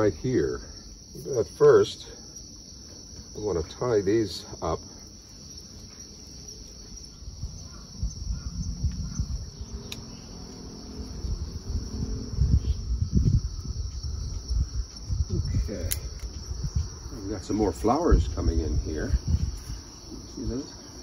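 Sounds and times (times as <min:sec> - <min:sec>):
crickets chirping: 0:00.0 - 0:21.0
irregular low rumble: 0:07.3 - 0:17.3.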